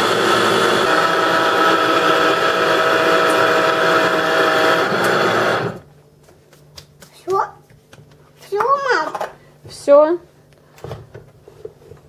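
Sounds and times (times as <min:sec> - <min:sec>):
blender motor whirring: 0:00.0 - 0:05.8.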